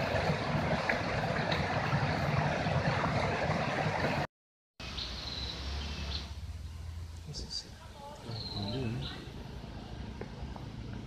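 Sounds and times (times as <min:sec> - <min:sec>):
stream rushing over rocks: 0:00.0 - 0:04.3.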